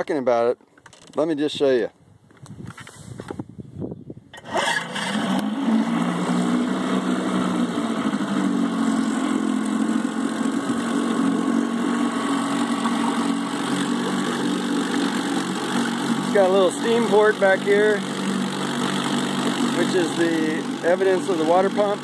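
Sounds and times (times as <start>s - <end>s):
outboard motor idling: 4.4s - 22.0s
propeller churning water: 4.4s - 22.0s.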